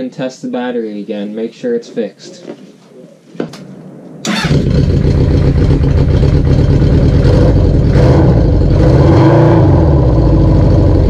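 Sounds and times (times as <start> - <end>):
motorcycle engine idling: 4.3 - 8.8, 10.0 - 11.0.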